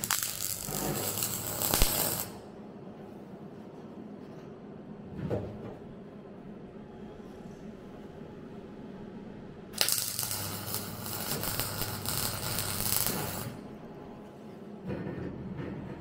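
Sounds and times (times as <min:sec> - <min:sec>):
welder arc crackling: 0:00.0 - 0:02.4, 0:09.8 - 0:13.6.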